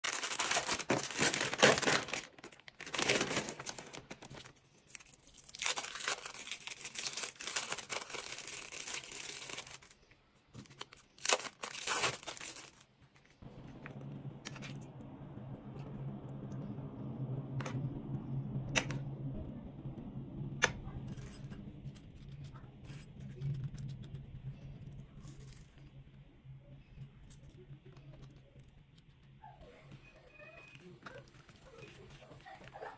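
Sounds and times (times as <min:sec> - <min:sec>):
plastic packaging crinkling: 0:00.0 - 0:13.4
low steady hum: 0:00.1 - 0:32.9.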